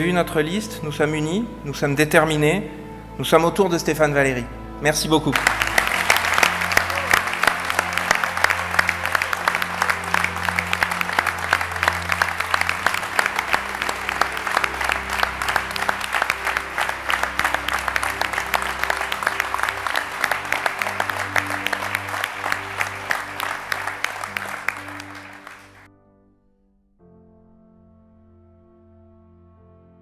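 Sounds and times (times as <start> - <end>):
background music of low notes: 0.0 - 30.0
audience applauding: 5.3 - 25.9.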